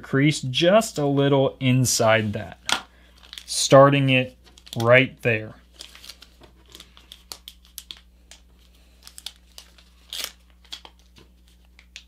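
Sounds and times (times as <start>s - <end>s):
paper rustling and crinkling: 5.6s - 12.0s.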